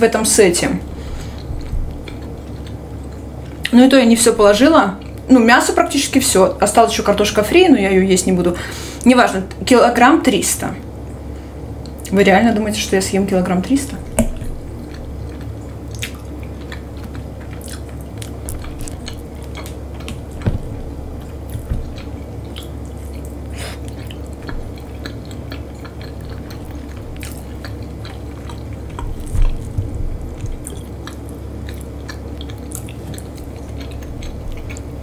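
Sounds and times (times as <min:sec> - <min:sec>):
steady low hum: 0:00.0 - 0:35.0
person chewing: 0:00.9 - 0:03.8, 0:14.0 - 0:35.0.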